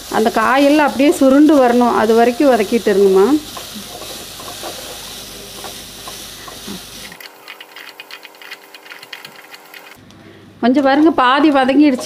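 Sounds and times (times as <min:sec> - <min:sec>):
vegetables sizzling in oil: 0:00.0 - 0:10.0
spatula scraping and tapping pan: 0:03.5 - 0:06.6.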